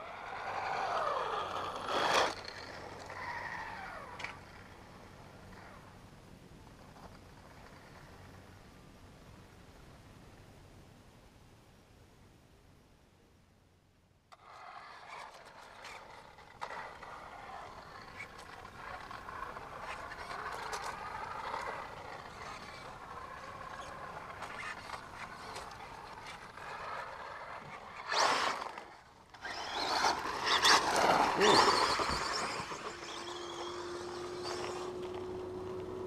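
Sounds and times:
electric toy car motor whine: 0.0s - 4.4s, 14.4s - 36.0s.

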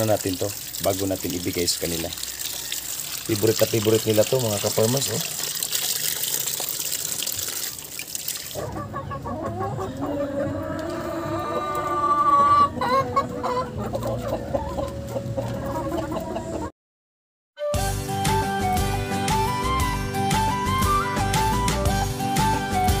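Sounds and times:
long drawn-out chicken call: 2.2s - 3.2s, 8.6s - 13.8s
chickens clucking: 8.6s - 16.7s.

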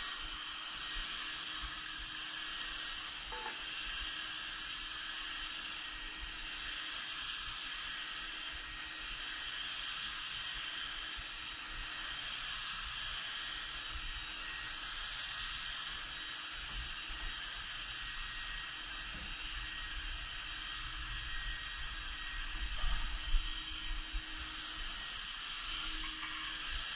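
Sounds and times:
spray gun hissing: 9.7s - 26.9s.

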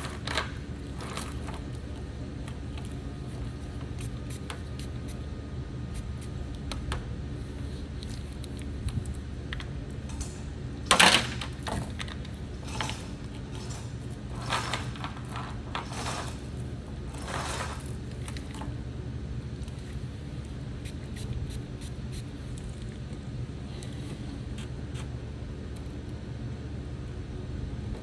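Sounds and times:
steady low hum: 0.0s - 28.0s
scraping and rattling: 17.1s - 18.5s.

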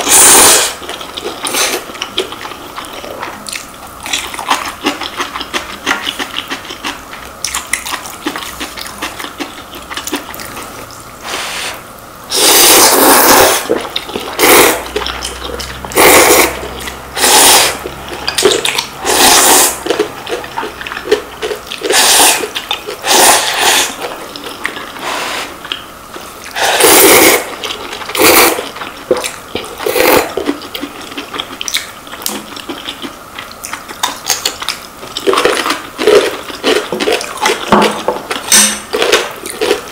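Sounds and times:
loud slurping of noodles: 0.0s - 0.8s, 11.2s - 13.8s, 15.9s - 17.8s, 19.0s - 19.8s, 21.8s - 24.0s, 25.0s - 25.6s, 26.5s - 27.5s, 28.2s - 28.7s
wet chewing: 0.0s - 11.5s, 12.3s - 39.9s.

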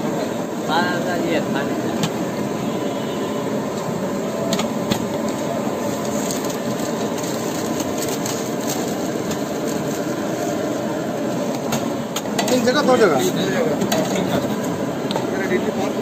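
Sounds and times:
busy street din: 0.0s - 16.0s.

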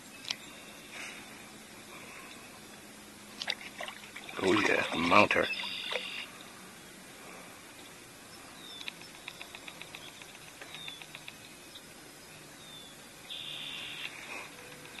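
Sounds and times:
bird calls with high ticks: 0.1s - 0.7s, 5.4s - 6.4s, 7.8s - 15.0s.

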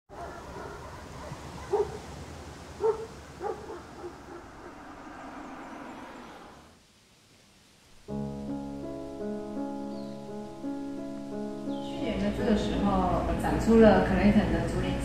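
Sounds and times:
dog barking: 0.1s - 2.0s, 2.8s - 4.7s
low hum of traffic: 0.1s - 7.0s.

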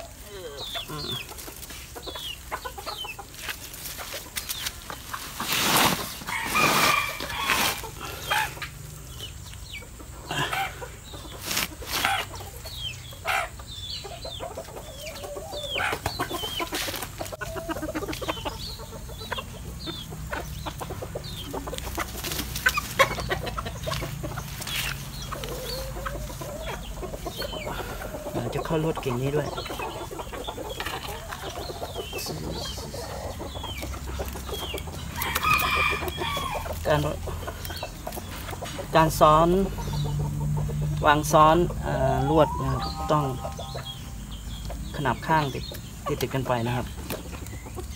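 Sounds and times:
chickens clucking: 0.0s - 47.9s.

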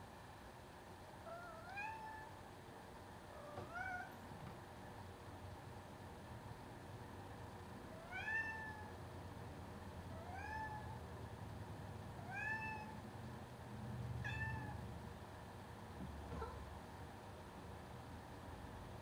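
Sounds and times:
cat meowing: 1.3s - 2.3s, 3.4s - 4.2s, 8.0s - 8.9s, 10.2s - 11.0s, 12.2s - 13.0s, 14.2s - 14.8s, 16.3s - 16.6s.

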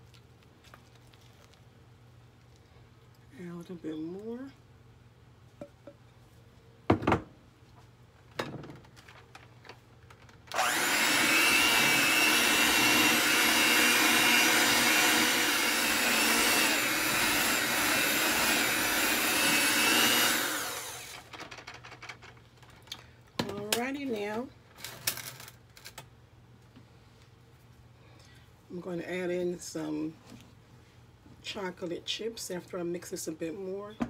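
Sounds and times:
electric hand mixer running: 10.5s - 21.3s.

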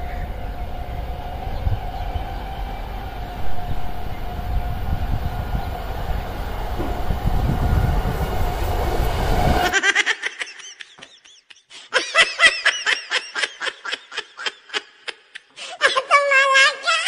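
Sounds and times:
electric train rumble and hum: 0.0s - 9.8s
high-pitched laughter: 9.7s - 17.0s.

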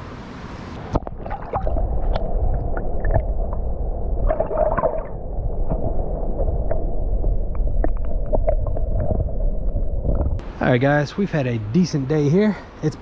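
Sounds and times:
water gurgling: 0.8s - 10.4s.

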